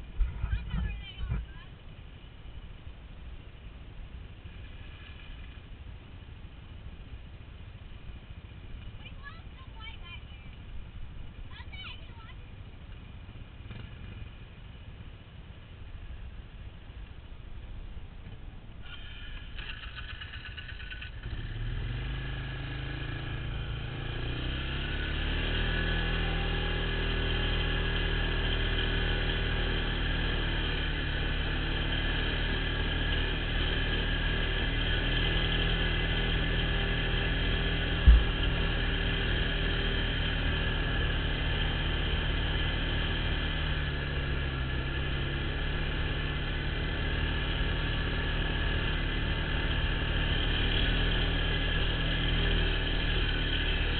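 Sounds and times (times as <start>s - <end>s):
atv engine running: 0.0s - 53.9s
sharp thump: 38.0s - 38.6s.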